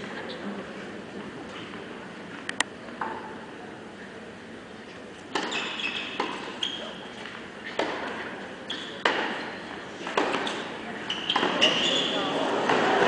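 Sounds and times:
racket hitting tennis ball: 5.3s - 8.4s, 9.0s - 11.8s, 12.6s - 13.0s
shoes squeaking on court: 5.3s - 12.7s.

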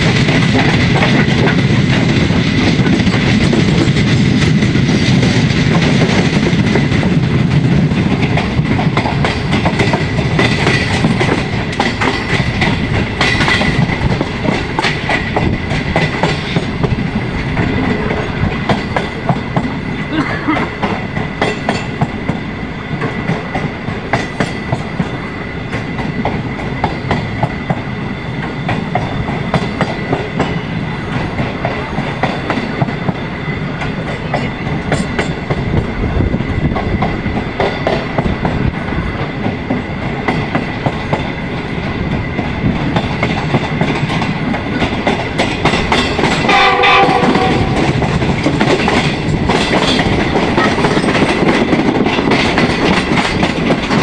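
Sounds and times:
train rumble: 0.0s - 54.0s
train wheels clicking over rail joints: 0.0s - 54.0s
train horn: 46.4s - 48.1s.

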